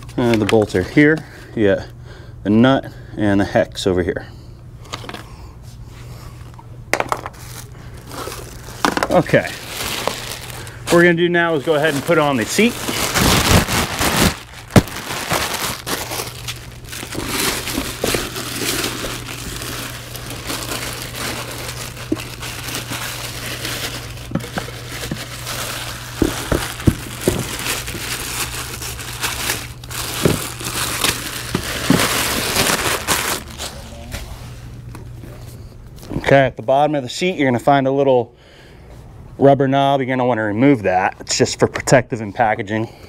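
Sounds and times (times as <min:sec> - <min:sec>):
plastic wrap crinkling: 0:07.2 - 0:34.1.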